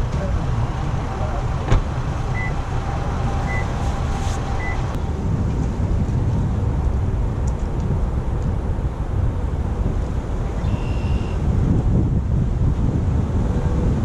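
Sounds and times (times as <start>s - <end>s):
wind buffeting microphone: 0.0s - 14.0s
short electronic beeps: 2.4s - 2.6s, 3.5s - 3.7s, 4.6s - 4.8s, 10.6s - 11.4s.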